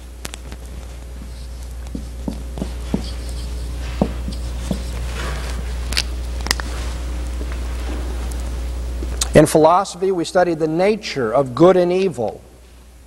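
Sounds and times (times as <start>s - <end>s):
marker writing on whiteboard: 1.2s - 5.0s.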